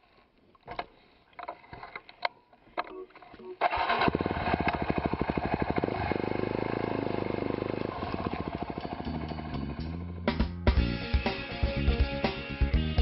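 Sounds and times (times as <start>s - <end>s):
motorcycle engine revving: 3.6s - 10.6s
guitar music: 9.0s - 13.0s.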